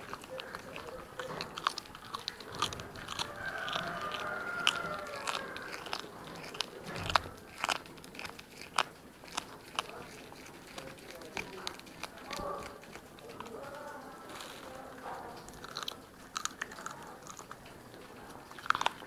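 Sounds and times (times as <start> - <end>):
cat crunching bones: 0.0 - 19.0.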